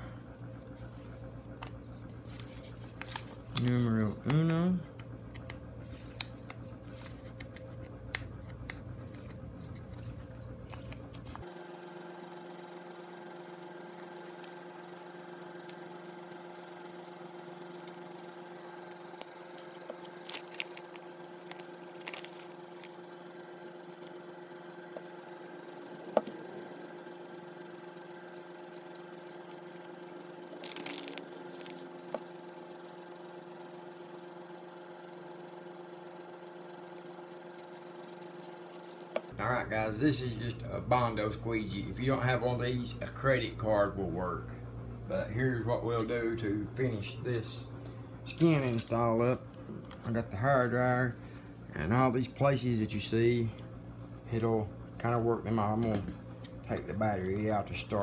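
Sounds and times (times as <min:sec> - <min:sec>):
low hum: 0:00.0 - 0:58.0
decal skins crinkling and clicking: 0:01.5 - 0:11.4, 0:19.1 - 0:24.2, 0:28.6 - 0:32.3, 0:36.9 - 0:39.3.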